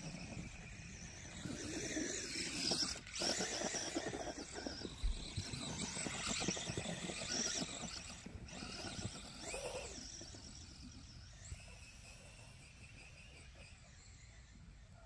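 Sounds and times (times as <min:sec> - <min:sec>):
tires crunching through snow: 0:00.0 - 0:11.0
electric motor whining: 0:00.0 - 0:14.4.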